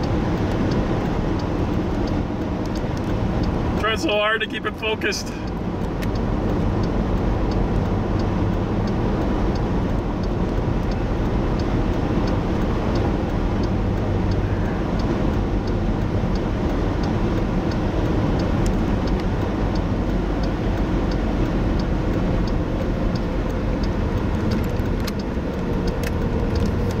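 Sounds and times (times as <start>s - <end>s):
car road and engine noise: 0.0s - 27.0s
faint regular ticking: 0.0s - 27.0s
sharp clicks: 18.4s - 27.0s.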